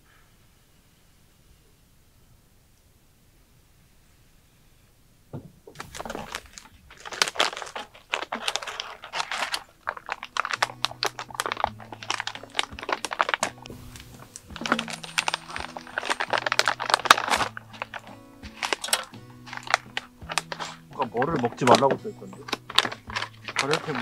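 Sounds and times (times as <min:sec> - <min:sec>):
plastic foil bag crinkling: 0:05.7 - 0:24.0.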